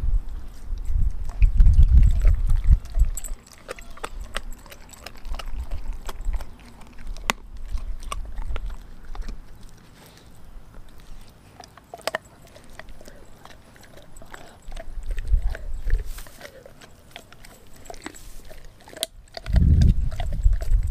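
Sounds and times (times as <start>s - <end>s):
dog gnawing bone: 0.3s - 20.9s
low rumble: 19.5s - 20.9s.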